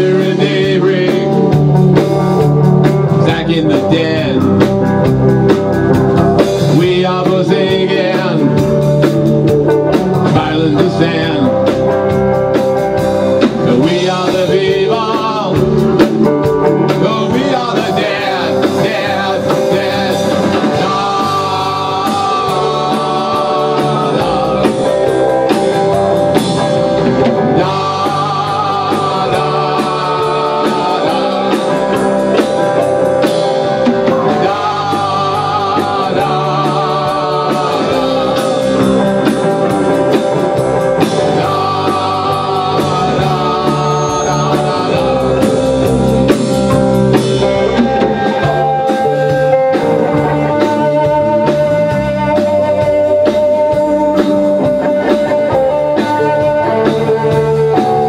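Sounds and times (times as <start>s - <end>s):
bass guitar: 0.0s - 58.0s
drum kit: 0.0s - 58.0s
electric guitar: 0.0s - 58.0s.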